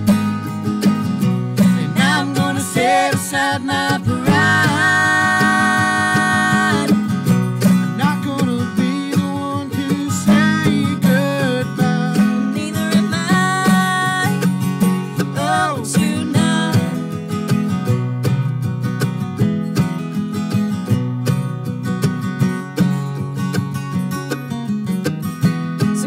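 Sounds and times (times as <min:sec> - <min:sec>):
acoustic guitar strumming: 0:00.0 - 0:26.0
people singing a duet: 0:01.6 - 0:07.2, 0:08.1 - 0:14.4, 0:15.2 - 0:17.0.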